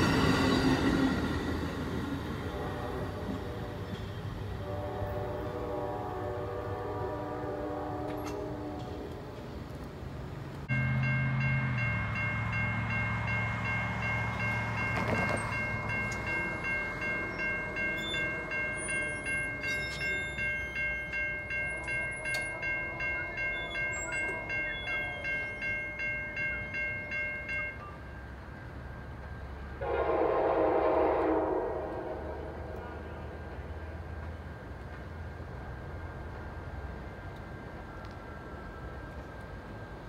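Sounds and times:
train horn blowing: 2.3 - 9.4, 29.8 - 33.3
railroad crossing bell ringing: 10.6 - 30.4.

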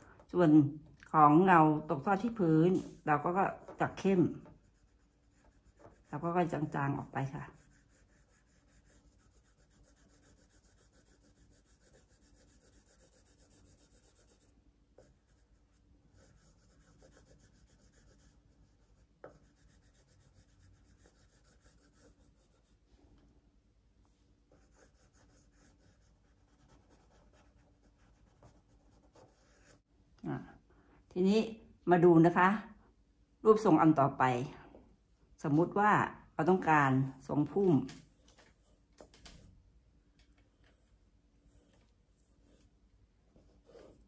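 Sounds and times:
drawing tool scratching paper: 2.7 - 22.8, 24.5 - 29.8, 43.4 - 44.0.

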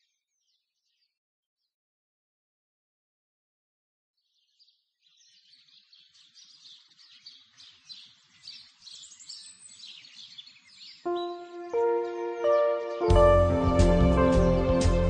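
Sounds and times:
birds chirping: 4.3 - 15.0
soft instrumental music: 11.1 - 15.0.

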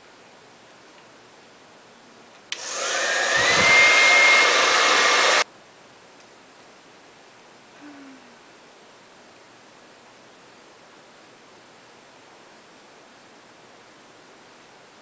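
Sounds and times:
hair dryer motor whine: 2.5 - 5.5.

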